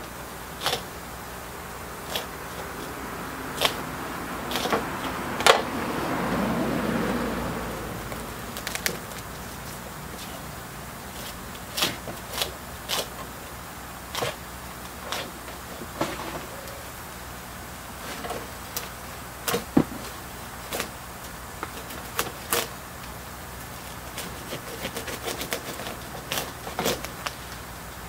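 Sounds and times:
steady low hum: 0.0s - 28.0s
stick scraping in soil: 0.5s - 1.0s, 2.0s - 3.9s, 4.5s - 5.6s, 8.1s - 13.4s.

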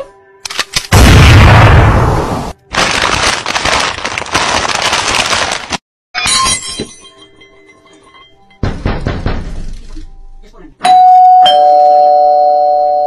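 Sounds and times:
glass shards tinkling: 6.2s - 8.6s
glass shattering: 6.2s - 9.8s.

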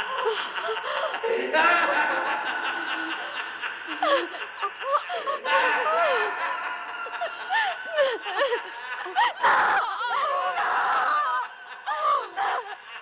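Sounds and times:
woman laughing hysterically: 0.0s - 13.0s
woman's rasping cries: 4.0s - 6.5s, 7.2s - 12.8s.

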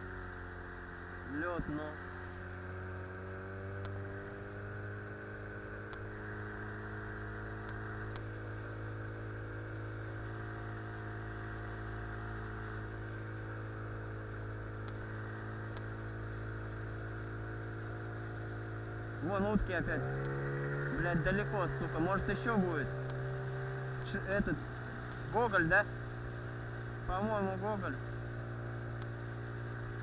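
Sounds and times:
outboard motor running: 0.0s - 30.0s.

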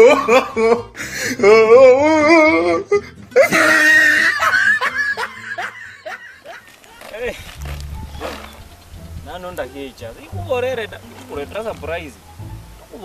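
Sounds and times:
person laughing loudly: 0.0s - 7.5s.

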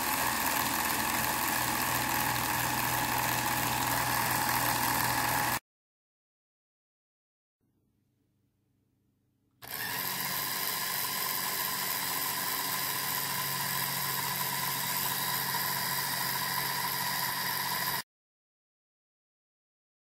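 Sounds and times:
chain and sprockets spinning: 0.0s - 5.6s, 9.6s - 18.0s
toy electric motor running: 0.0s - 5.6s, 9.6s - 18.0s.

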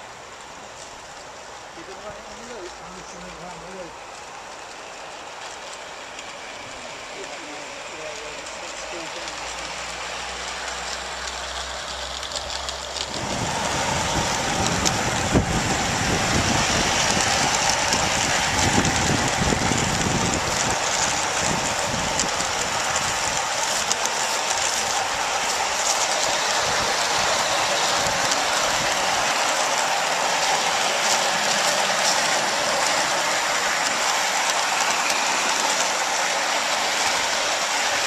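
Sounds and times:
model train wheels clattering on rails: 0.0s - 38.0s.

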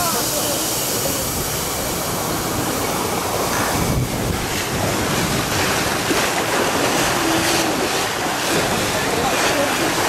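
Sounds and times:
whitewater rapids rushing: 0.0s - 10.0s
wind buffeting microphone: 3.1s - 10.0s.

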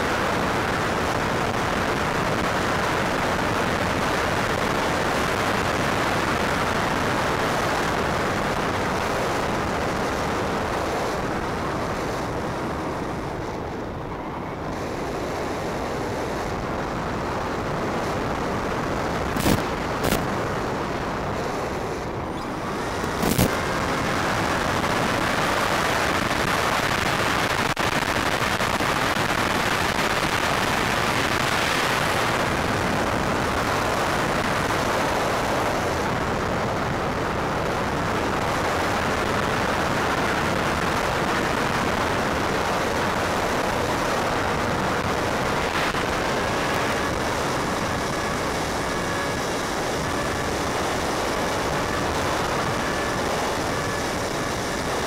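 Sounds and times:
steady rushing hiss: 0.0s - 55.0s
sharp crackles: 19.3s - 20.5s, 21.4s - 23.8s.

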